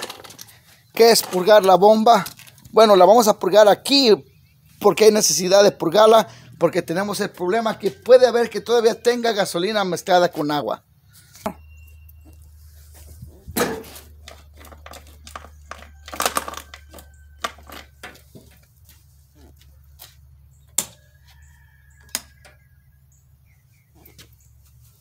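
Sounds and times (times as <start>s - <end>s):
metal tools clicking and knocking: 0.0s - 2.7s, 13.6s - 18.7s.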